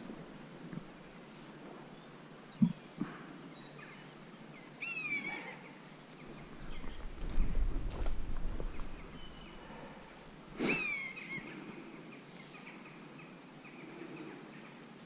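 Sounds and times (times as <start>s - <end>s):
bird call: 10.6s - 11.6s.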